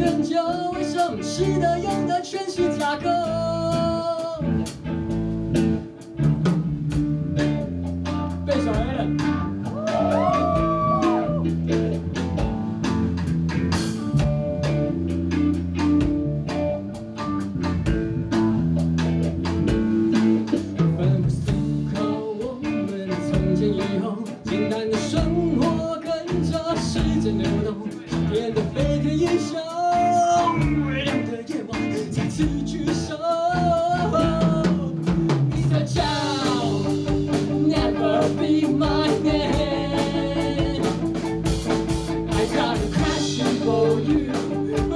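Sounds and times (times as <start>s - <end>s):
person singing: 0.0s - 4.6s, 9.6s - 12.6s, 20.1s - 41.4s, 42.3s - 44.9s
drum kit beat: 0.0s - 44.9s
electric bass: 0.0s - 44.9s
electric guitar: 0.0s - 44.9s.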